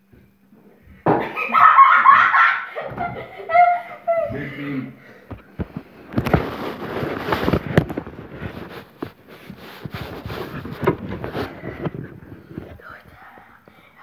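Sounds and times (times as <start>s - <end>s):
fabric rustling on microphone: 5.4s - 12.9s.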